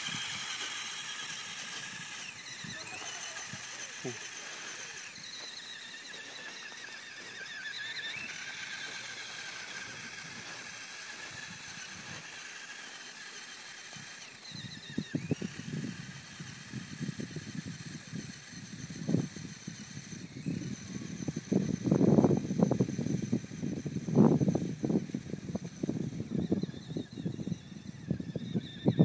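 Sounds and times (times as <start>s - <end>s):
electric motors whining: 0.0s - 29.0s.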